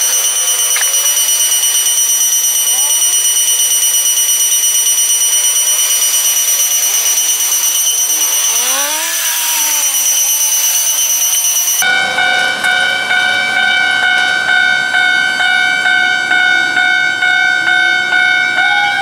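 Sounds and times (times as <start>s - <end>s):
high-pitched pulsing alarm: 0.0s - 19.0s
train metallic squeal: 0.0s - 19.0s.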